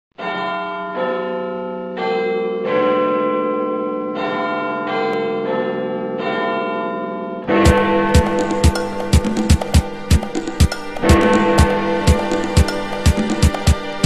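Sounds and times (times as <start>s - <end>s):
bell chimes ringing tune: 6.3s - 14.0s.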